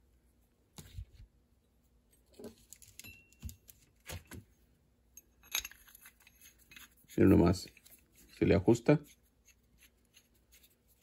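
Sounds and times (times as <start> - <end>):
metal tool pieces clinking: 5.2 - 7.8.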